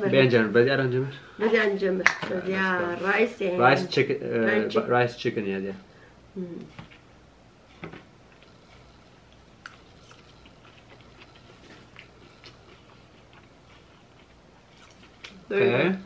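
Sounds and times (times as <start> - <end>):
people chewing: 7.6 - 16.0.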